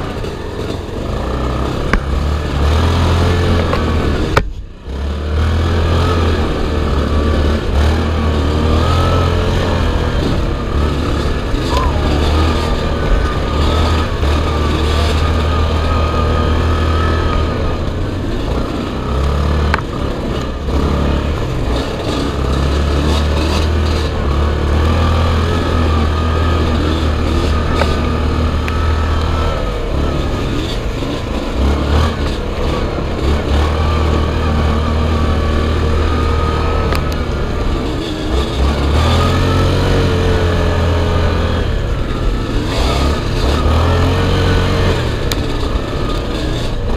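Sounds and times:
quad bike engine running: 0.0s - 46.9s.

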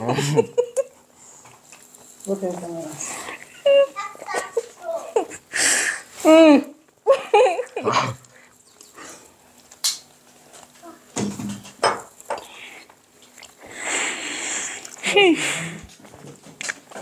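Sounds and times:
breathy hissing: 5.4s - 6.2s, 8.2s - 9.5s, 12.3s - 13.0s, 13.6s - 15.9s.

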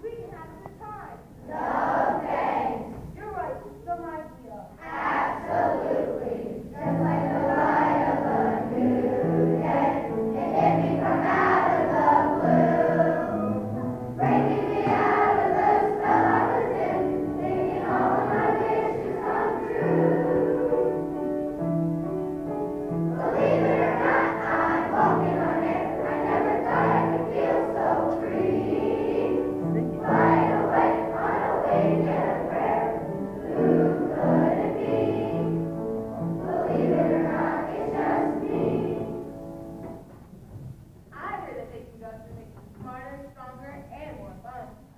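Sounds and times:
children's choir singing: 0.0s - 3.2s, 4.8s - 40.1s
instrumental accompaniment: 6.8s - 41.0s.

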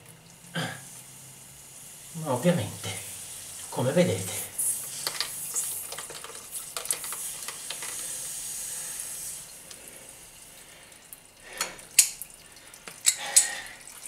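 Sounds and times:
water hissing from pipe fitting: 0.0s - 14.0s.

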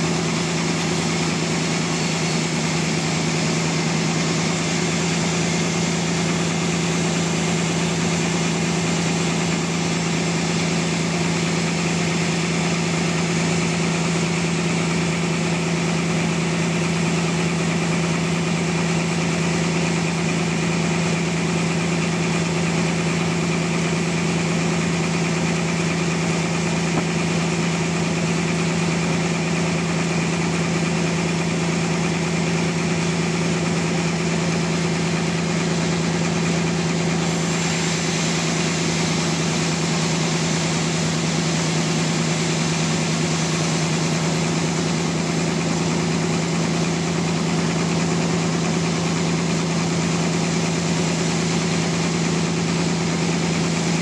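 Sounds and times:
saw blade hissing through log: 37.1s - 43.0s.

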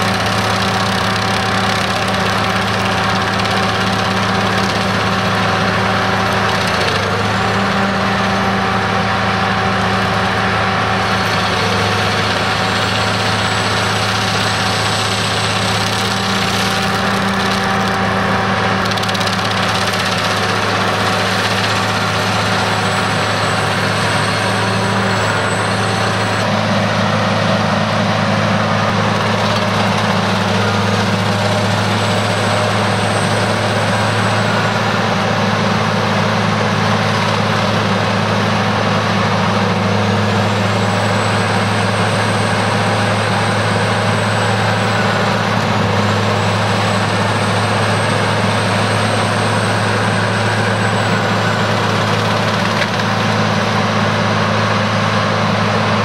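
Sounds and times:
cutting wheel grinding stump: 0.0s - 56.0s
stump grinder engine droning: 0.0s - 56.0s.

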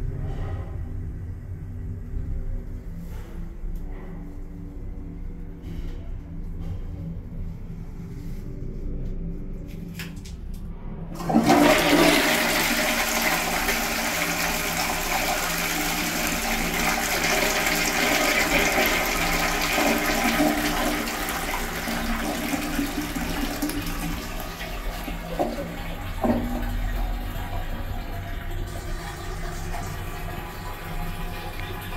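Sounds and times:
toilet flushing: 11.1s - 31.9s.

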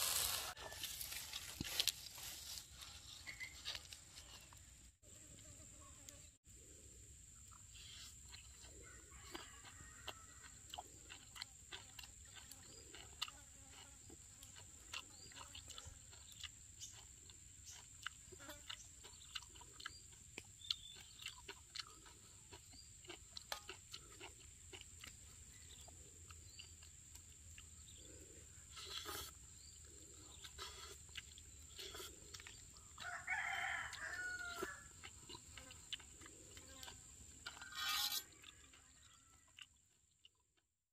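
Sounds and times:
rooster crowing: 0.3s - 1.2s, 8.8s - 10.6s, 33.0s - 34.9s, 37.6s - 39.5s.

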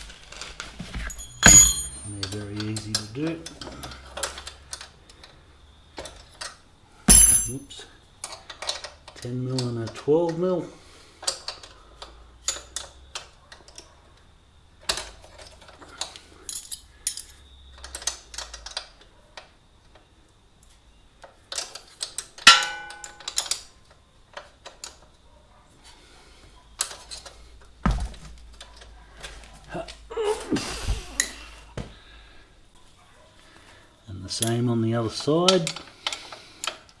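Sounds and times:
spanners clinking on metal bolts: 1.0s - 4.9s, 7.1s - 8.9s, 14.9s - 18.8s, 21.5s - 23.7s
sharp metal clang: 1.1s - 2.1s, 7.1s - 7.8s, 22.5s - 23.3s.

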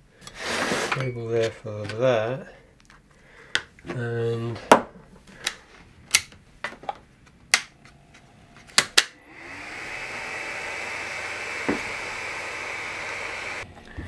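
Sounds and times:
electronics cooling fans whirring: 7.7s - 14.0s.

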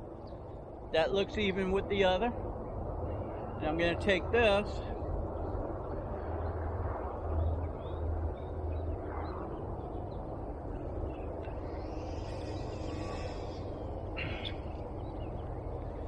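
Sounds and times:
steady low rumble: 0.0s - 16.0s
faint bird chirps: 7.4s - 16.0s
rushing hiss: 11.8s - 14.6s.

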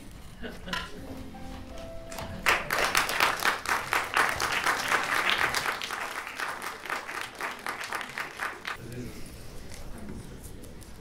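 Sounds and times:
audience applauding: 2.1s - 8.8s.

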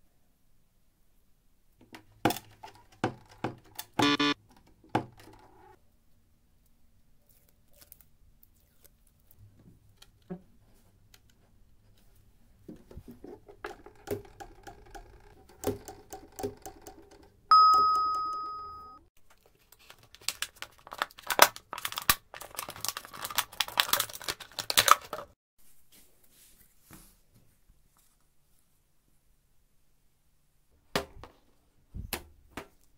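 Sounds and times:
loud bell-like ding: 17.5s - 19.0s.

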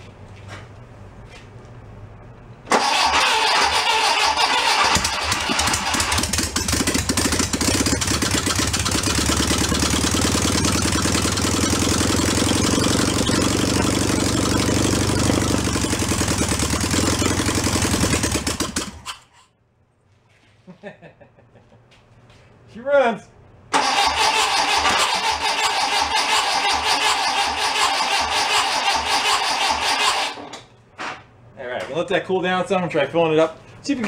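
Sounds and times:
air-cooled engine running: 2.7s - 19.1s, 23.7s - 30.4s.

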